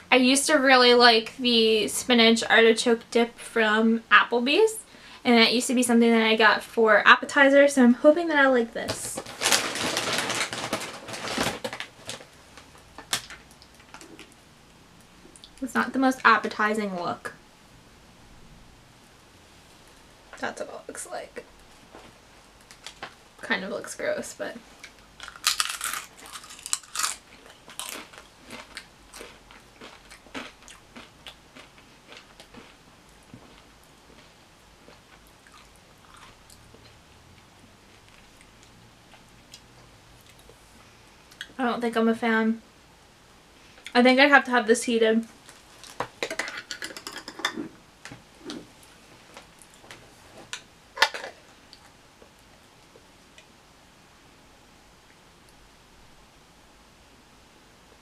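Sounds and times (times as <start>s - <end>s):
food packaging crackling: 8.9s - 14.4s, 24.8s - 37.0s
tortilla chip crunching: 25.2s - 37.0s.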